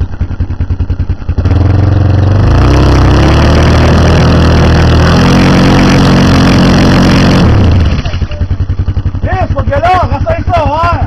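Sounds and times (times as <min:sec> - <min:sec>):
atv engine under load: 0:00.0 - 0:11.0.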